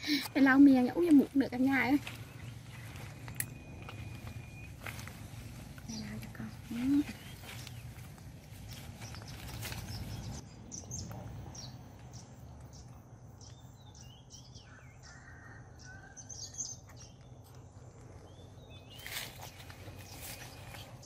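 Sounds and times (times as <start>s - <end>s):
small birds chirping: 0.0s - 21.0s
soft rustling: 1.1s - 10.4s.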